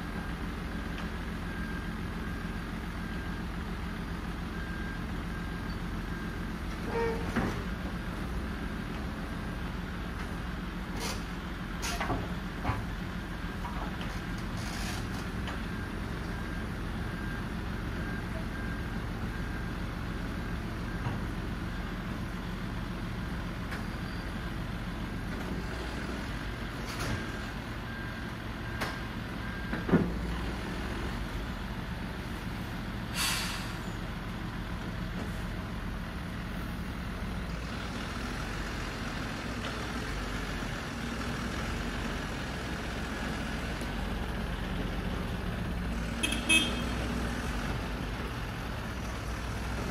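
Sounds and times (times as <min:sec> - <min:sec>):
air brake hiss: 0:33.1 - 0:33.9.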